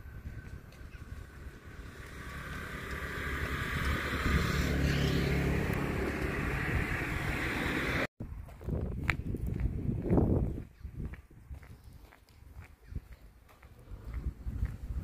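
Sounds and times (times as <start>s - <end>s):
engine hum with hiss: 1.0s - 8.1s.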